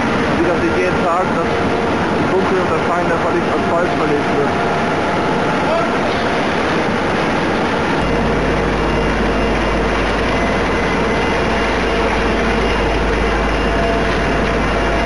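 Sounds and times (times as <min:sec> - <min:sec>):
heavy machinery engine: 0:00.0 - 0:15.0
steady whine: 0:00.0 - 0:15.0
low hum: 0:06.2 - 0:15.0.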